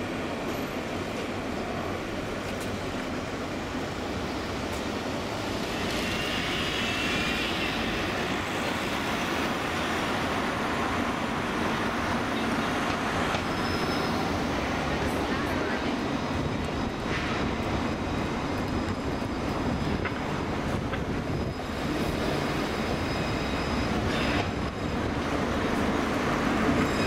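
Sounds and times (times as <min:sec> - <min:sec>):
tram running noise: 0:00.0 - 0:27.0
high-pitched squeal: 0:05.5 - 0:14.7, 0:21.2 - 0:25.5.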